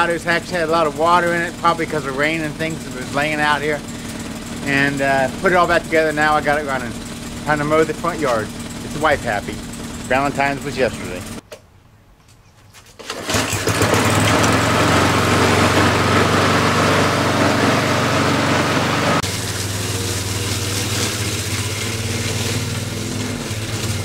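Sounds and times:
lawn mower engine running: 0.0s - 11.4s, 12.9s - 24.0s.

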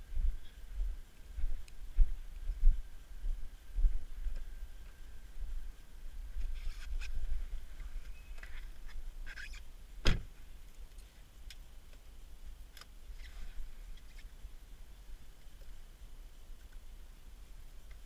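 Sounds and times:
car door shutting: 10.0s - 10.3s.

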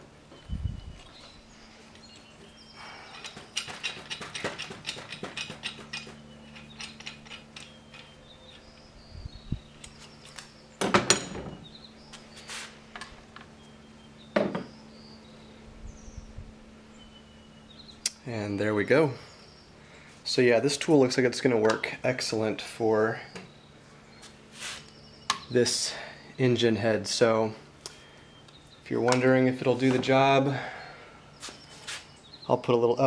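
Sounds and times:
metal parts clanking: 3.1s - 8.8s
metal tool clicking and rattling: 3.1s - 8.8s.

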